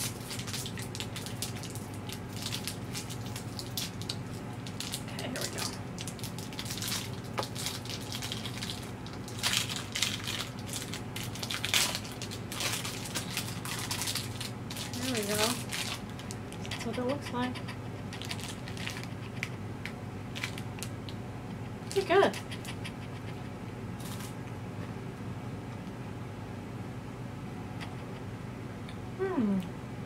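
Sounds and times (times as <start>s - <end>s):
wrapper crinkling: 0.0s - 16.7s, 18.2s - 19.2s, 20.3s - 21.2s, 24.0s - 24.4s.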